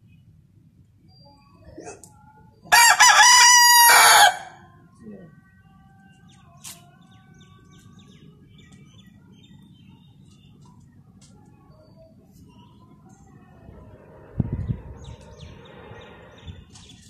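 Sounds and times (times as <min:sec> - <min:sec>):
rooster crowing: 0:02.7 - 0:04.6.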